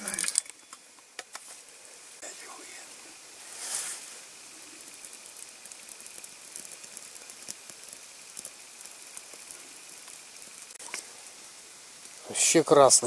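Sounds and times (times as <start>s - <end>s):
fire pops and snaps: 0.0s - 1.5s, 4.2s - 11.1s, 11.9s - 12.3s
campfire crackling: 0.0s - 13.0s
steady hiss: 0.0s - 13.0s.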